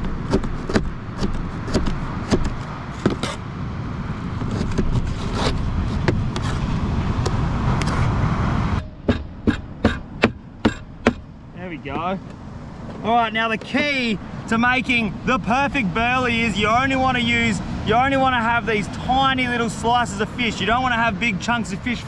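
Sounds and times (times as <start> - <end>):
cleaver chopping on cutting board: 0.3 - 3.4, 9.0 - 11.2
surf rumbling: 1.0 - 22.0.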